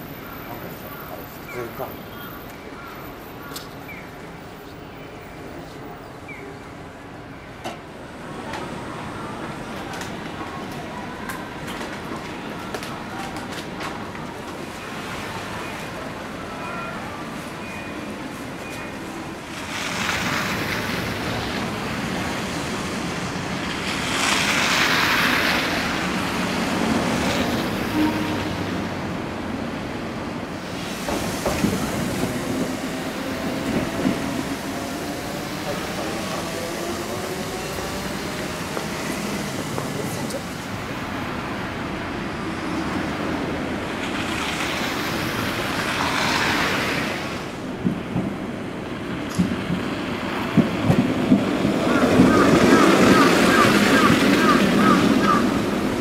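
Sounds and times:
tyres hissing on wet road: 0:19.4 - 0:28.9, 0:30.6 - 0:47.8
vehicle passing on slush: 0:23.8 - 0:26.8, 0:44.1 - 0:47.5.

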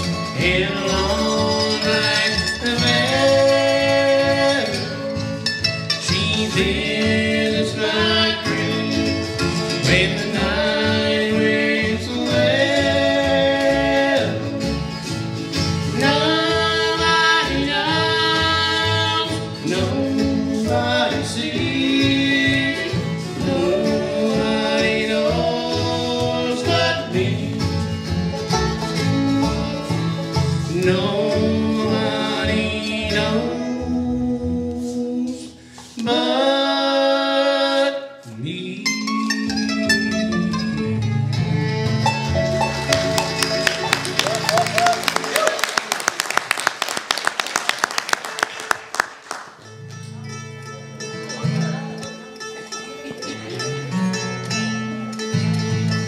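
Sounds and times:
bluegrass band playing: 0:00.0 - 0:56.0
person singing: 0:15.9 - 0:27.9, 0:30.6 - 0:40.1.

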